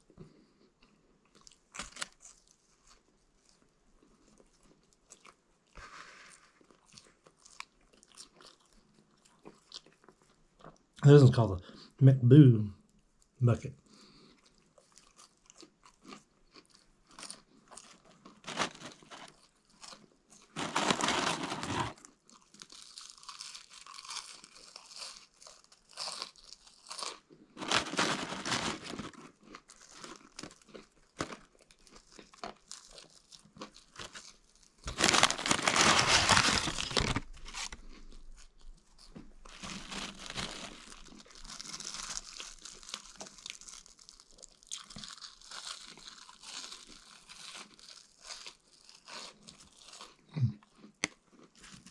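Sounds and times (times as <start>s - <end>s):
chewing fries: 0.0s - 11.9s, 12.8s - 51.9s
paper bag rustling: 18.4s - 19.3s, 20.6s - 22.0s, 27.6s - 29.1s, 34.9s - 37.8s.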